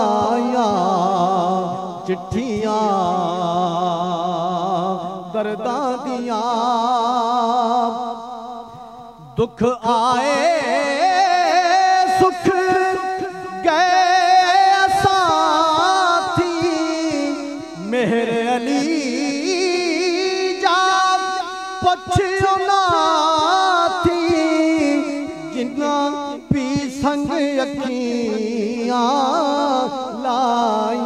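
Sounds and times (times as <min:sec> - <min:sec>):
man singing unaccompanied: 0:00.0 - 0:08.2, 0:09.2 - 0:31.0.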